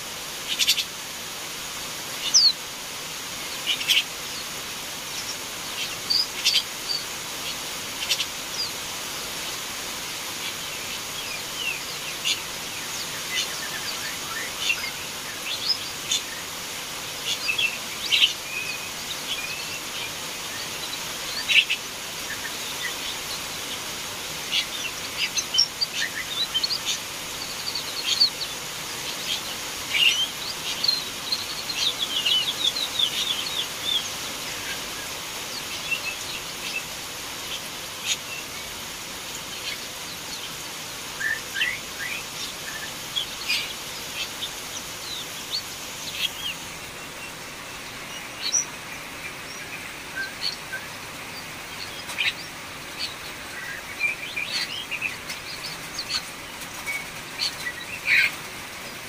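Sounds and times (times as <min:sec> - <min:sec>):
bird chirping: 0:00.4 - 0:00.9, 0:02.2 - 0:02.6, 0:05.1 - 0:08.8, 0:17.2 - 0:59.0.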